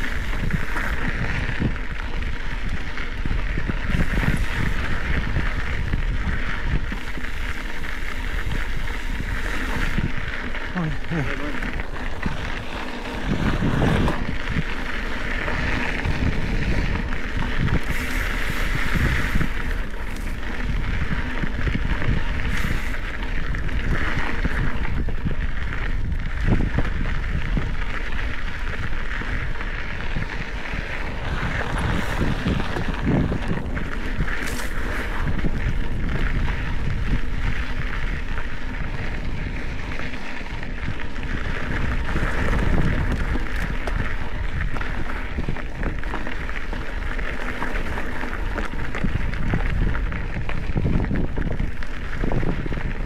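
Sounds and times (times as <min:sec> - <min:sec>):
bike tyres on gravel trail: 0:00.0 - 0:53.0
wind noise on microphone: 0:00.0 - 0:53.0
bike knocks and rattles: 0:11.4 - 0:53.0.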